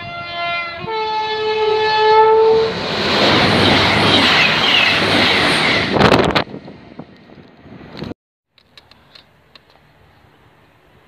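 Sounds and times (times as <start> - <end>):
two-tone train horn: 0.0 - 2.8
train passing at speed: 0.0 - 8.1.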